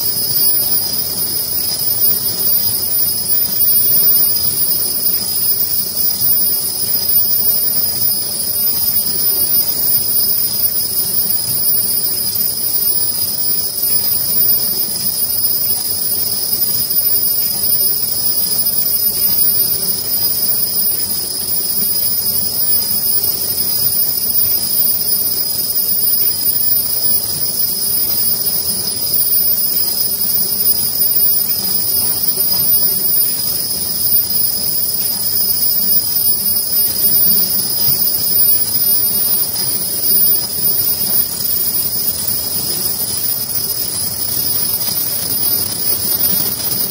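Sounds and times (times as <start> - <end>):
high-pitched machine whine: 0.0 - 46.9
low machine hum: 0.0 - 46.9.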